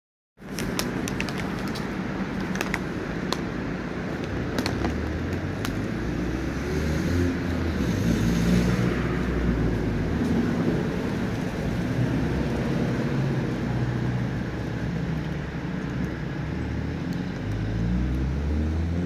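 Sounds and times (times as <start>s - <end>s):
road traffic rumble: 0.4s - 19.0s.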